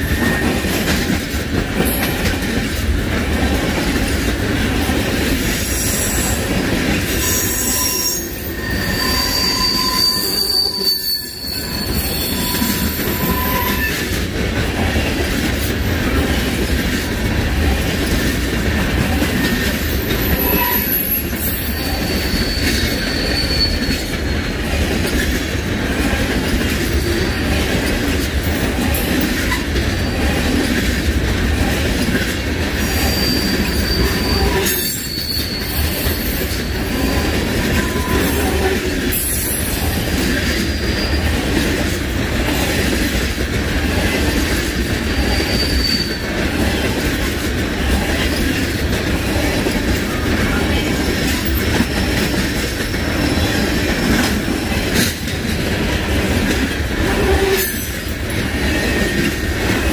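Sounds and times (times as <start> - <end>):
train wheels rumbling on rails: 0.0 - 59.9
high-pitched wheel squeals: 7.2 - 14.0, 19.9 - 24.4, 32.8 - 39.6, 45.2 - 46.4.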